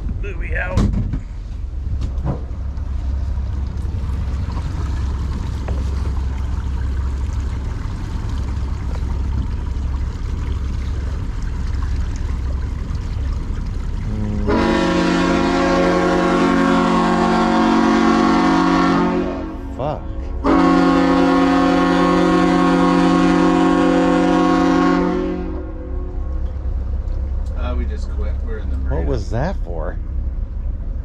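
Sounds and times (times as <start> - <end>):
boat motor rumbling: 0.0 - 31.0
loud multi-tone horn blast: 14.1 - 26.2.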